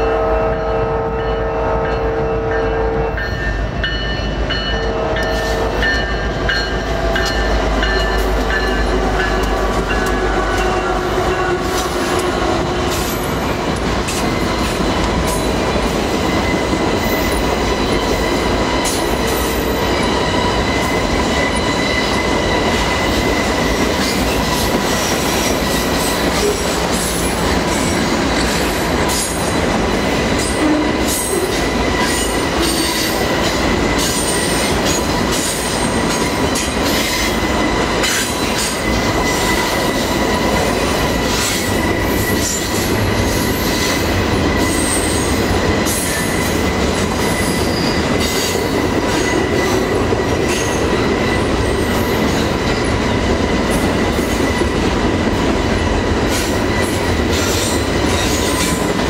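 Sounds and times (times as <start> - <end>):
train horn: 0.0 - 3.6, 4.7 - 6.2, 9.0 - 13.2, 30.5 - 31.6
wheels rushing on rail: 0.0 - 59.0
clickety-clack of rail joints: 3.2 - 59.0
high wheel squeal: 47.2 - 48.7.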